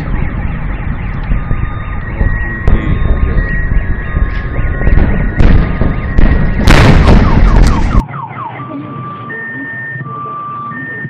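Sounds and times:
loud burst of noise: 0.0s - 8.0s
car alarms sounding: 0.0s - 11.0s.

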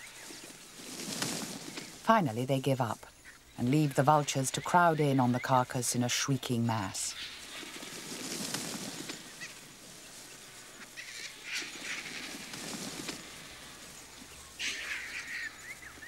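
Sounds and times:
vultures squawking and hissing: 10.4s - 16.0s.

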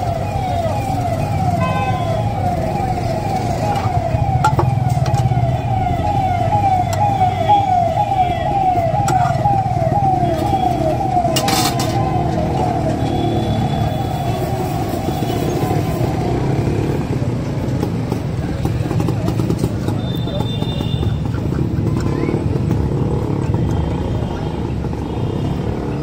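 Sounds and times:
electronic siren-like alarm: 0.0s - 17.0s.

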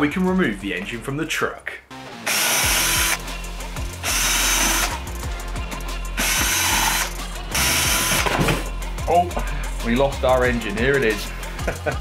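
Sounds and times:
cordless drill running: 2.2s - 3.2s, 4.0s - 5.0s, 6.2s - 8.4s.

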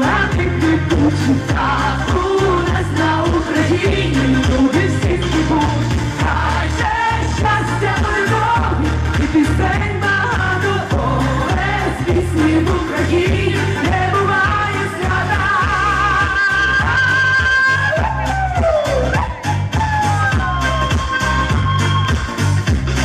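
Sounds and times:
woman singing pop song: 0.0s - 21.0s
music with bass beat: 0.0s - 23.0s.

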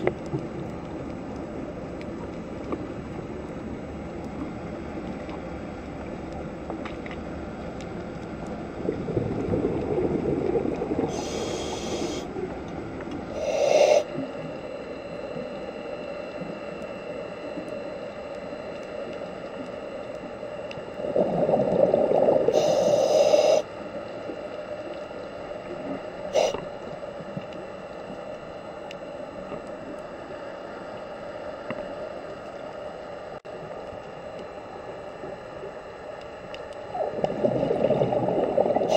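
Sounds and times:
underwater hum: 0.0s - 38.9s
regulator hiss: 10.6s - 12.5s, 13.2s - 18.3s, 18.9s - 28.1s
diver exhaling bubbles: 21.0s - 23.6s, 36.9s - 38.9s.

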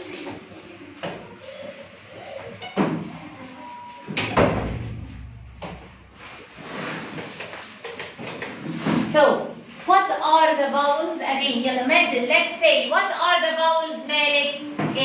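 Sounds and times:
knocks: 4.2s - 6.2s
low rumble: 4.4s - 6.7s.

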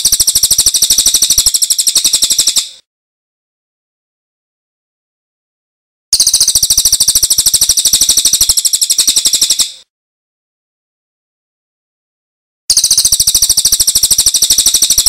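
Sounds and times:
rapid high-pitched bird trill: 0.0s - 2.8s, 6.1s - 9.9s, 12.7s - 15.0s.

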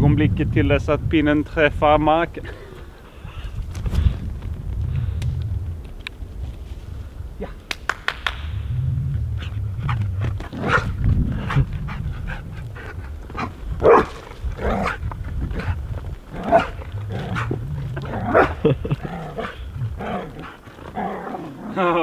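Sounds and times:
dog barking: 10.6s - 10.9s, 13.8s - 14.2s.

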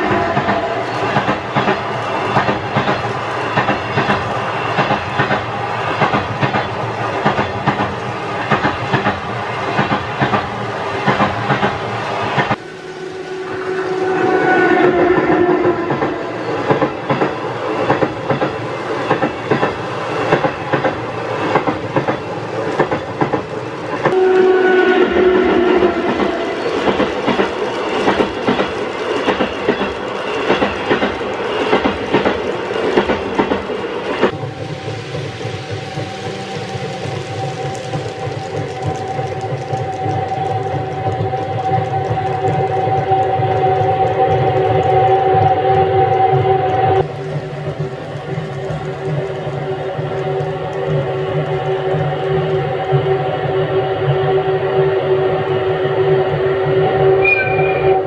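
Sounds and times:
train wheels clickety-clack: 0.0s - 12.7s, 13.8s - 58.0s
held tone: 57.2s - 58.0s.

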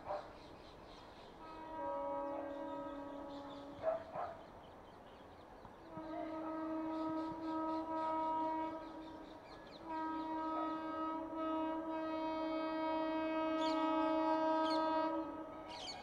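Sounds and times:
locomotive horn blasts: 1.4s - 4.0s, 5.8s - 16.0s.

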